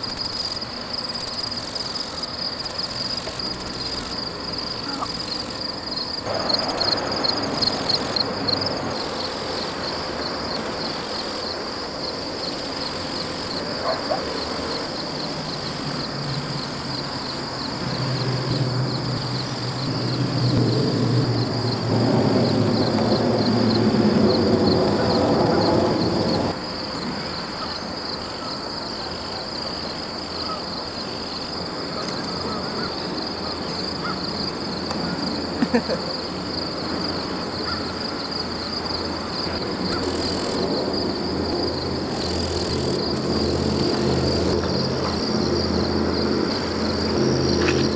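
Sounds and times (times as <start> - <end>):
crickets chirping: 0.0 - 47.9.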